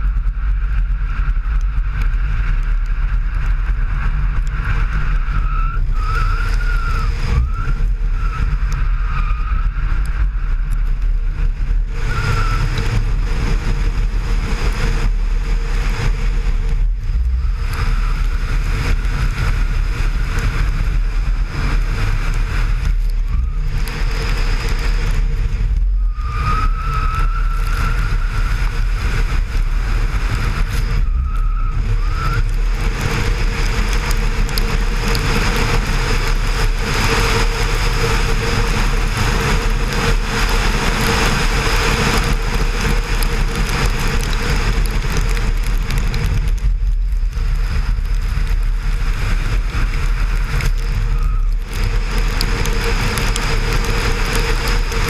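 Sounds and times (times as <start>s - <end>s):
car engine running hard: 0.0s - 55.0s
wind rumble on microphone: 0.0s - 55.0s
tyre squeal: 5.2s - 9.9s, 12.0s - 12.7s, 26.0s - 28.6s, 30.5s - 32.5s.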